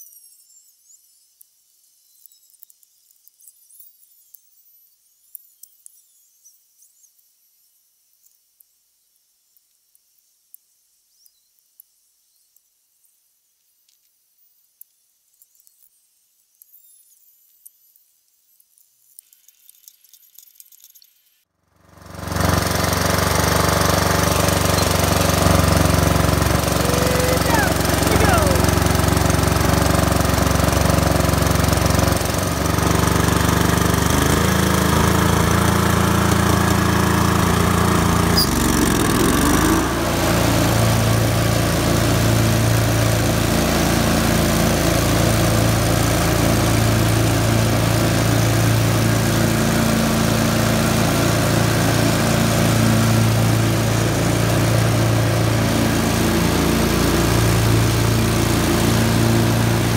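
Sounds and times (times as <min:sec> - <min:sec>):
mower engine running: 0:21.8 - 0:59.9.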